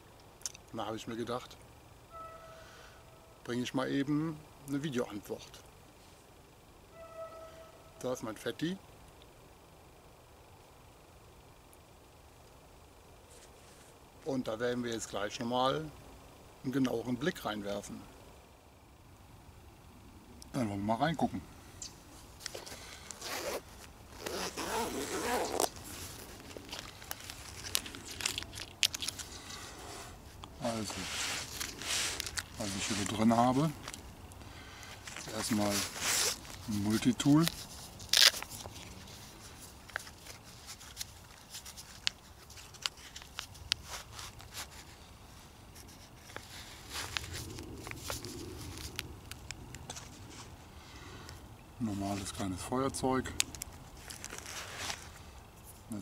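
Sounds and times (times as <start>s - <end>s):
light clicks of pouch handling: 21.8s - 50.6s, 53.3s - 56.0s
zipper pulled open on nylon pouch: 22.6s - 34.0s, 35.0s - 45.0s, 45.7s - 49.4s.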